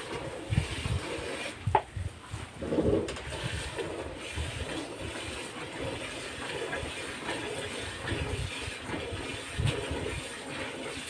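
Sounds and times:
milk squirting into metal pail: 0.0s - 11.0s.

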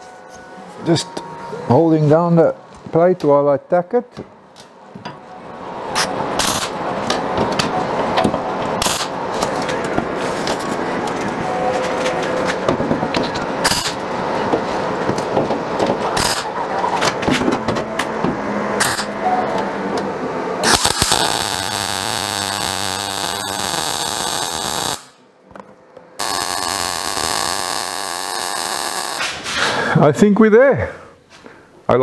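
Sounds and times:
welder crackling buzz: 20.6s - 25.2s, 26.2s - 29.4s.

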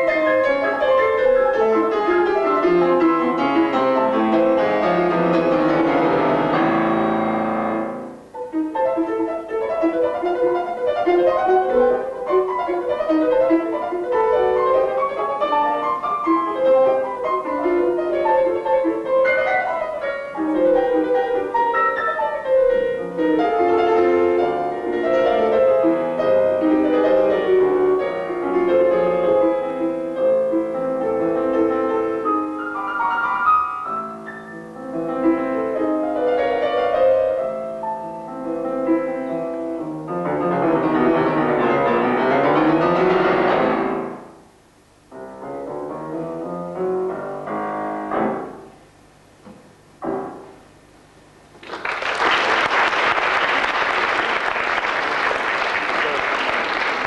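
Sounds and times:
solo piano piece: 0.0s - 51.6s
applause: 51.6s - 57.0s.

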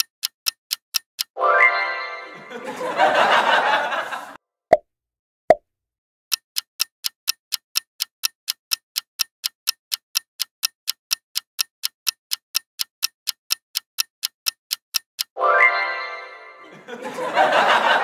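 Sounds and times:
clock ticking: 0.0s - 1.4s, 6.3s - 15.4s.

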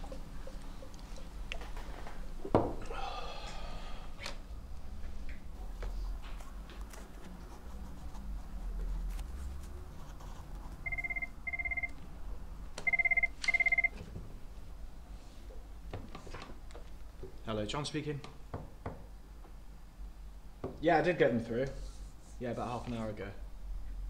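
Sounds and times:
telephone ringing electronic trill: 10.8s - 11.9s, 12.9s - 13.9s.

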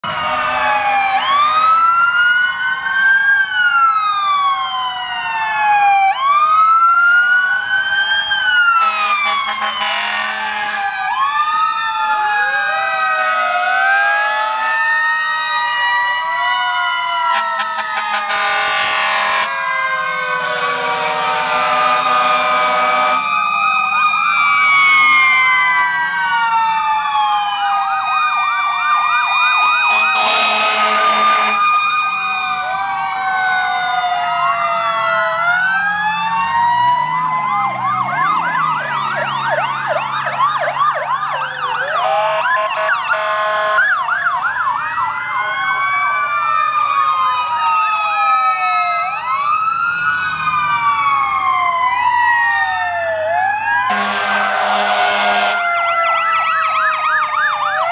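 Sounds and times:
fire truck sirens wailing: 0.0s - 57.9s
horn blasts: 8.8s - 10.9s, 17.3s - 19.6s, 20.4s - 23.2s, 29.9s - 31.6s, 42.0s - 43.9s, 53.9s - 55.6s.

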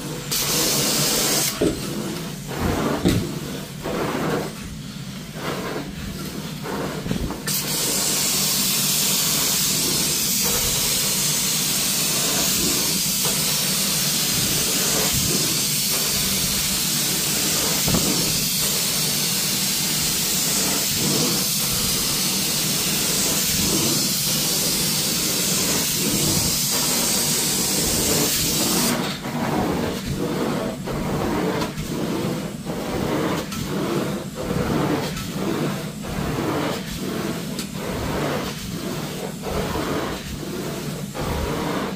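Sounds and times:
hot water spraying: 0.0s - 41.9s
vacuum humming: 0.0s - 41.9s.

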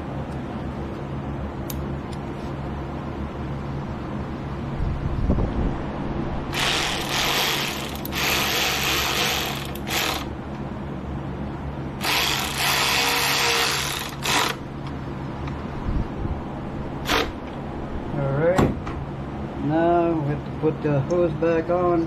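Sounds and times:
ratchet wrench clicking: 6.6s - 10.3s, 12.0s - 14.6s.

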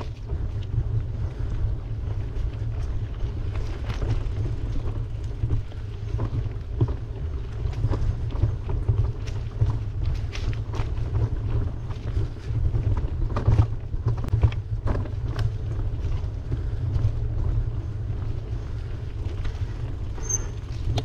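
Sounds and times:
road noise: 0.0s - 21.0s
wind buffeting microphone: 0.0s - 21.0s.

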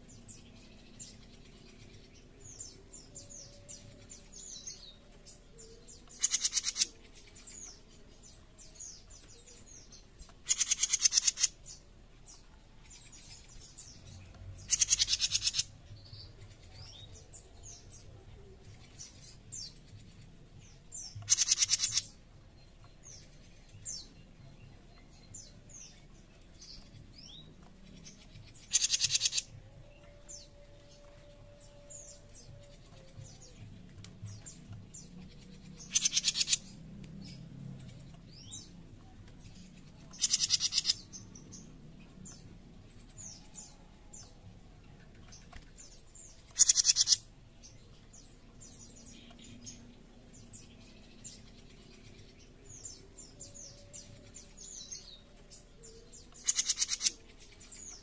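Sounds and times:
bird harsh rasping calls: 10.4s - 11.6s, 40.2s - 41.0s, 46.6s - 47.2s.

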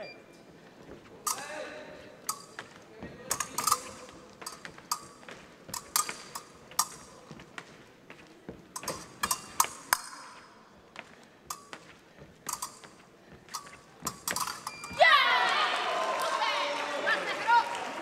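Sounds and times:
fencing blades clinking and scraping: 1.1s - 15.1s.

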